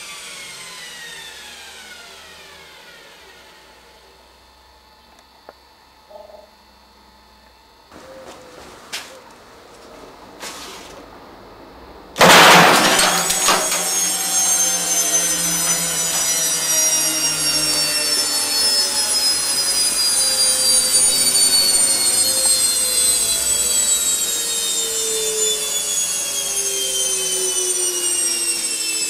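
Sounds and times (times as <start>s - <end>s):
high motor whine: 11.4s - 29.0s
motor spinning with harsh rasping: 12.3s - 29.0s.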